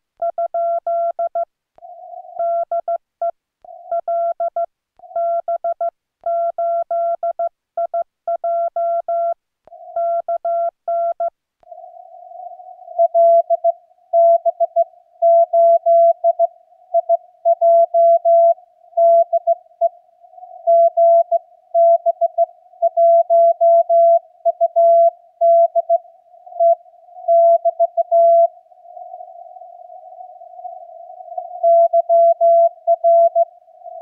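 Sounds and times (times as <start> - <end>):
faint radio hiss: 26.0 - 34.0
morse code tone: 26.6 - 28.5, 31.6 - 33.5.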